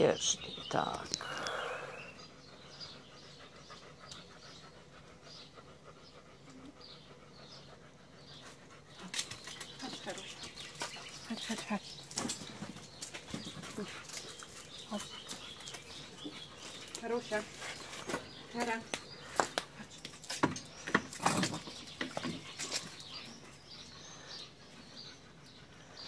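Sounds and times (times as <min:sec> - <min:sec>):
dogs panting: 0:01.8 - 0:26.0
dog claws on paving stones: 0:08.9 - 0:23.4.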